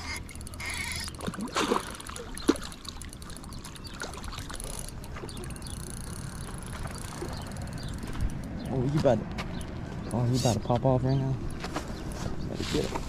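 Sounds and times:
fish splashing in water: 0:00.0 - 0:08.2.

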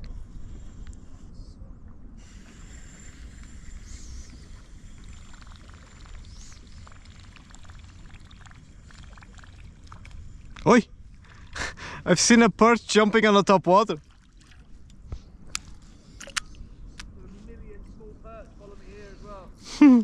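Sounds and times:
steady low rumble: 0:00.0 - 0:20.0
water lapping and sloshing: 0:04.2 - 0:12.1, 0:12.9 - 0:17.1.

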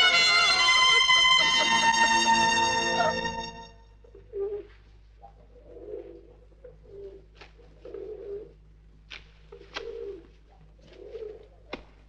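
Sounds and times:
pigeons cooing: 0:04.1 - 0:08.7, 0:09.5 - 0:11.7.

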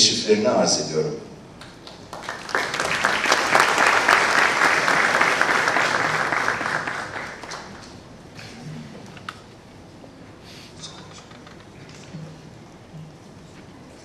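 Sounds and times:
audience applauding: 0:01.6 - 0:08.1.

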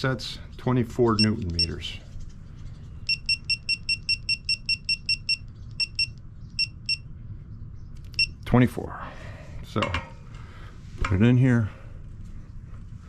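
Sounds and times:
short high beeps: 0:03.1 - 0:07.0.

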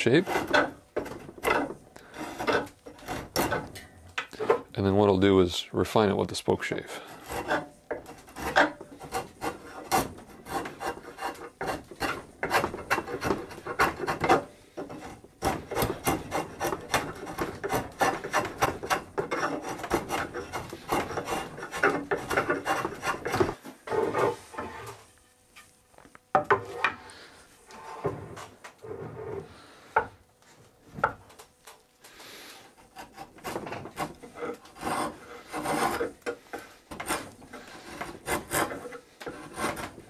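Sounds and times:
draw knife shaving wood: 0:00.0 - 0:03.8, 0:06.9 - 0:25.0, 0:32.1 - 0:40.0.

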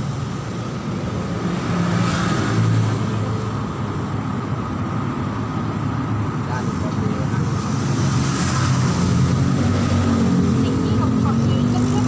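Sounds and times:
road traffic: 0:00.0 - 0:12.0
vehicle passing: 0:06.5 - 0:12.0.

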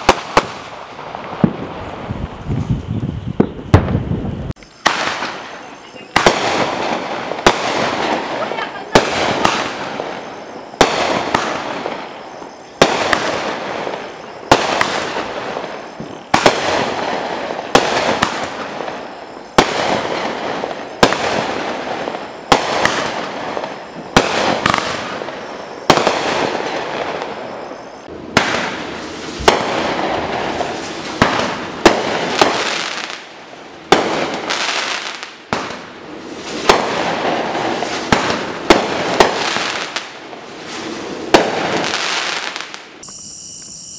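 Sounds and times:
firework bangs with rumble: 0:03.4 - 0:05.4, 0:28.3 - 0:32.7, 0:36.5 - 0:39.8.

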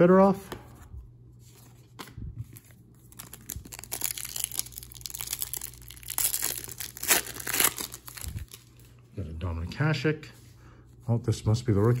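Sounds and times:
plastic wrapper crinkling and tearing: 0:02.6 - 0:08.9.

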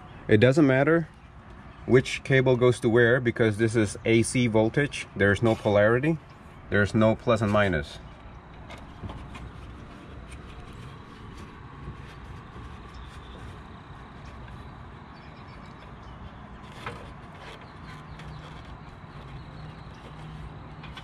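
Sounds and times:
low outdoor rumble: 0:00.0 - 0:21.0
gloved hands handling wires: 0:07.3 - 0:21.0.

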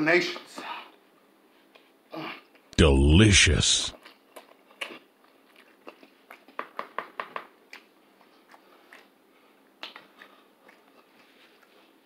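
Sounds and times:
person chewing wetly: 0:04.0 - 0:06.8, 0:07.6 - 0:12.0.

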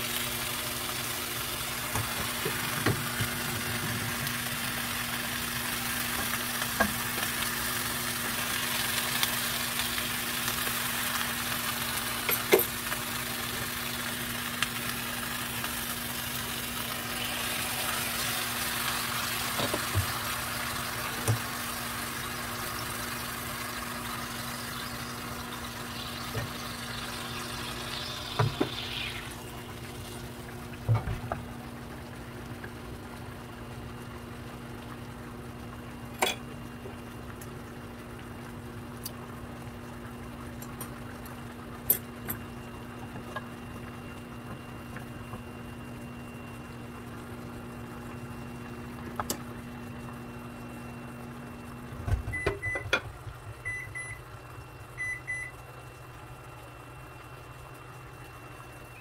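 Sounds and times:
fish sizzling in a frying pan: 0:00.0 - 0:31.0
kitchen appliance hum: 0:00.0 - 0:59.0.

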